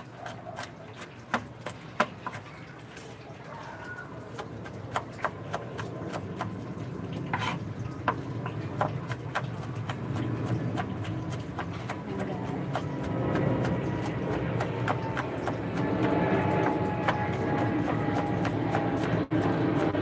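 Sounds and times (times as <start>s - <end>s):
knife chopping on plastic board: 0.0s - 2.5s, 7.4s - 20.0s.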